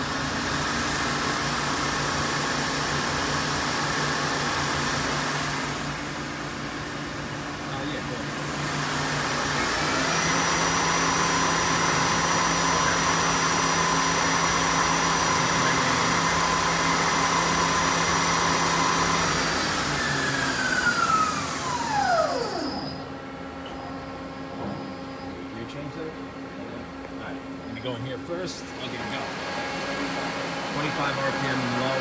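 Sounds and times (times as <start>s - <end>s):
lathe spindle whining: 8.3s - 25.4s.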